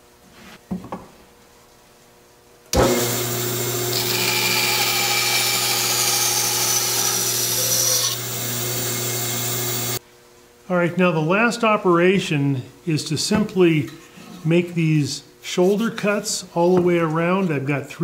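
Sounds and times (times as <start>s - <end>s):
bandsaw running: 2.8s - 10.0s.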